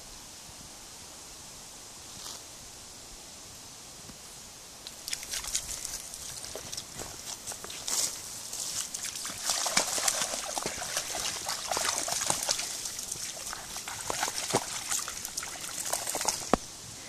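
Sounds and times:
water trickling: 0:04.8 - 0:16.7
dog splashing through water: 0:04.9 - 0:16.6.

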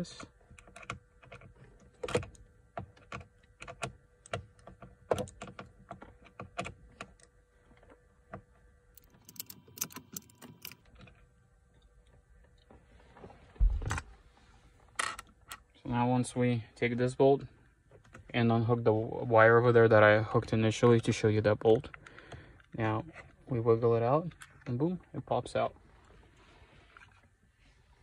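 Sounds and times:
screwdriver clicking on bolt: 0:09.0 - 0:10.8.

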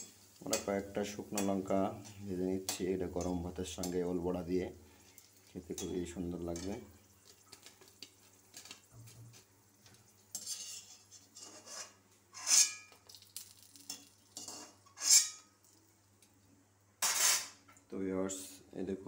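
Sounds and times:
metal spoon scraping a wok: 0:10.3 - 0:12.9, 0:14.4 - 0:15.4, 0:17.0 - 0:17.6.

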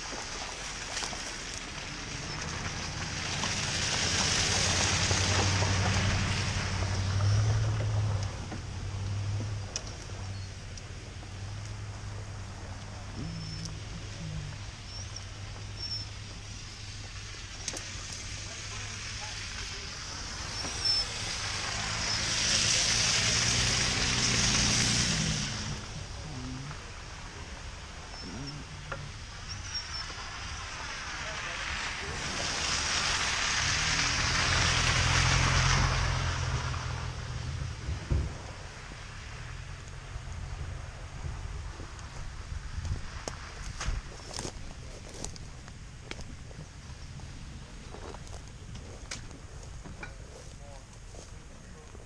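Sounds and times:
truck engine hum: 0:00.0 - 0:52.0
tyres hissing on wet road: 0:00.0 - 0:52.0
hissing rush: 0:12.4 - 0:37.0.

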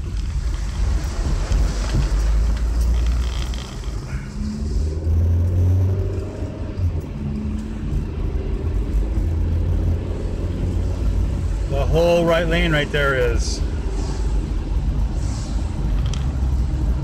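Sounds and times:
engine and road rumble: 0:00.0 - 0:17.0
tyres hissing on wet road: 0:12.5 - 0:17.0.

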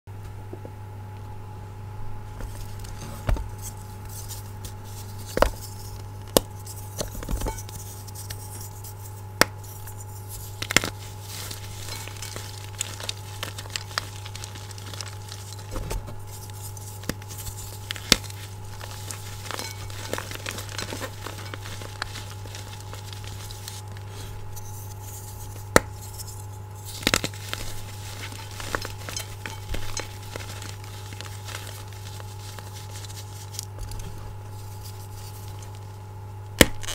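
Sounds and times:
chalk crunching and crumbling: 0:02.4 - 0:36.9.

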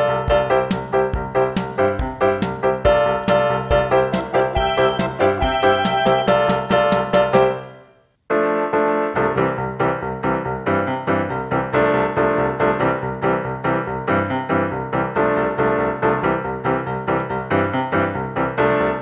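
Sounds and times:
background music with steady beat: 0:00.0 - 0:08.0.

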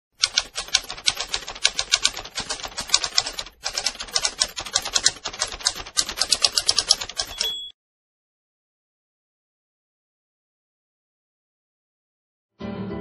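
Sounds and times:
keystrokes clicking: 0:00.2 - 0:07.7.

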